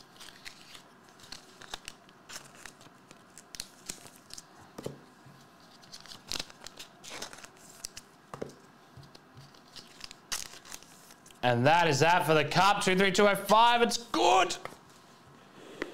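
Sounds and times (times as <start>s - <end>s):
trading cards rustling and clicking: 0.0s - 11.4s.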